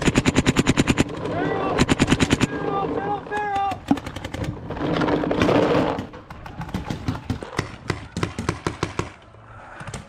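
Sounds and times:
paintball markers firing: 0.0s - 2.5s, 6.0s - 10.0s.

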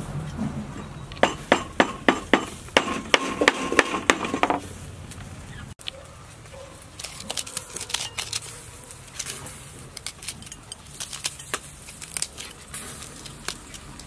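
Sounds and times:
knife scraping seeds from gourds: 6.8s - 14.0s.

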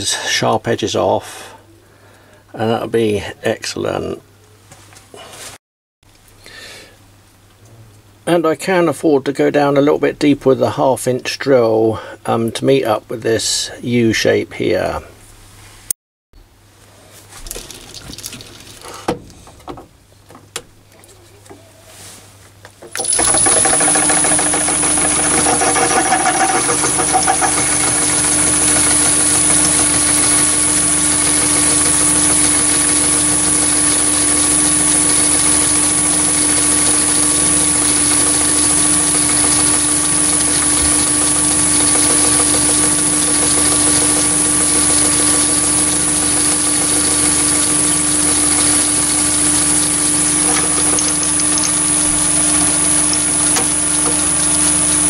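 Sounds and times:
drill cutting into metal: 22.9s - 55.0s
lathe whining and humming: 22.9s - 55.0s.

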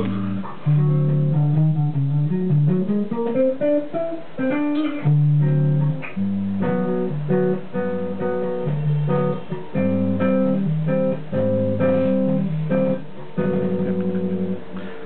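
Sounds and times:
electric bass guitar: 0.0s - 15.0s.

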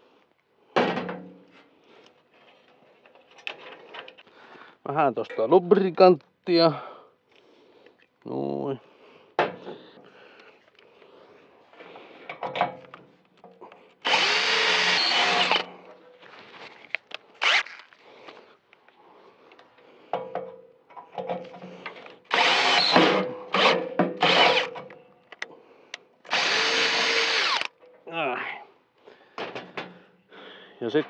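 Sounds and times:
cordless drill boring into metal: 14.0s - 15.8s, 17.4s - 17.8s, 22.3s - 24.9s, 26.3s - 27.8s.

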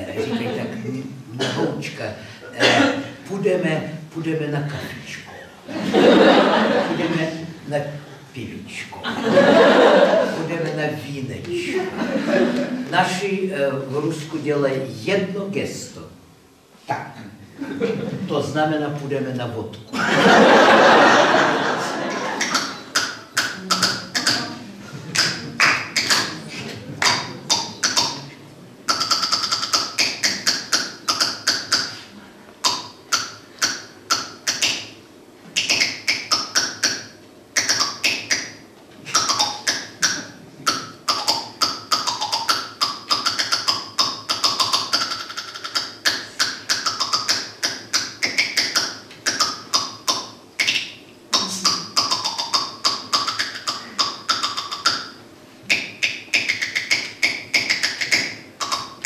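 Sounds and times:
mouth percussion clicks and pops: 22.4s - 26.4s, 27.0s - 59.0s.

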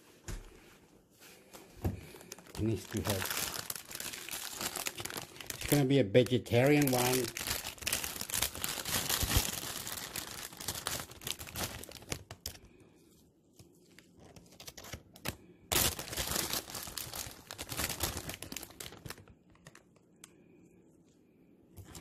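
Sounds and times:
packaging crinkling and rustling: 1.8s - 12.7s, 13.8s - 20.1s.

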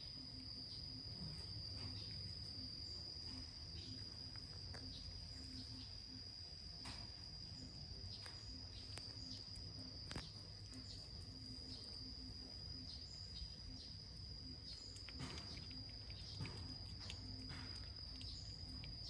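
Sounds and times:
insect drone: 0.0s - 19.0s
cat chewing and licking: 1.3s - 5.9s, 8.8s - 19.0s.

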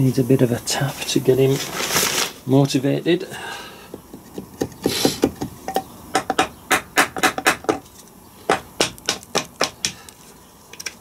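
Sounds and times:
hammer tapping on metal: 3.9s - 7.8s, 8.5s - 10.0s.

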